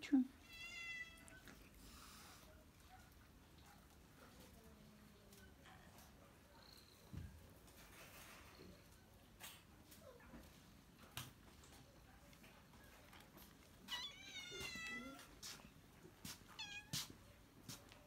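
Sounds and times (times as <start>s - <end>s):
cat meowing: 0.4s - 1.4s, 13.8s - 15.3s, 16.6s - 17.1s.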